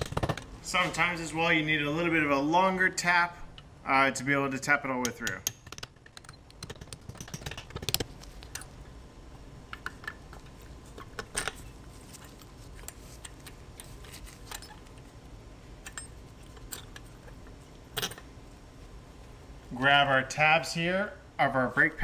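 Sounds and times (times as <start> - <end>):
hammer tapping metal punch: 5.0 - 8.0.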